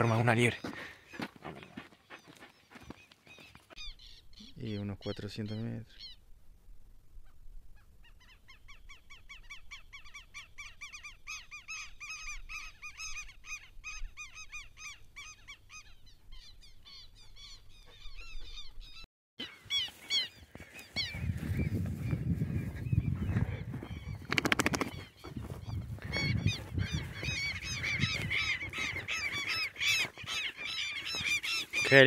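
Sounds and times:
birds honking calls: 16.6 - 32.0.

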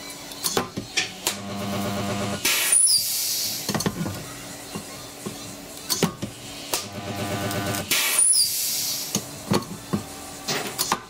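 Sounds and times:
faint music: 0.0 - 11.0
welding arc crackling: 6.7 - 9.2.

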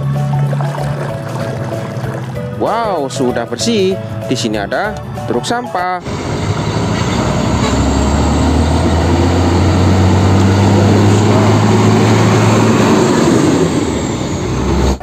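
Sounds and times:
garbage truck driving past: 6.0 - 15.0.

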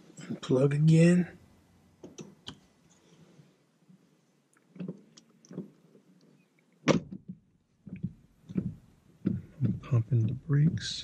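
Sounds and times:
soft knocks and rustles: 6.9 - 11.0.

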